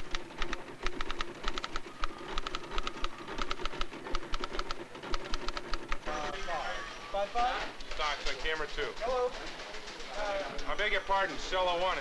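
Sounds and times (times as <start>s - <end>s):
typewriter keys striking: 0.0s - 6.0s.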